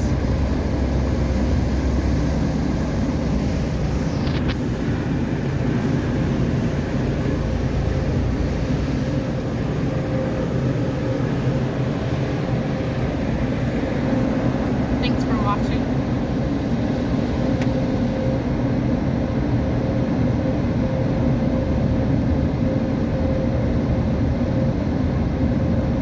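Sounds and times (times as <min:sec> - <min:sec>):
low rumble: 0:00.0 - 0:18.3
car wash rushing noise: 0:00.0 - 0:18.8.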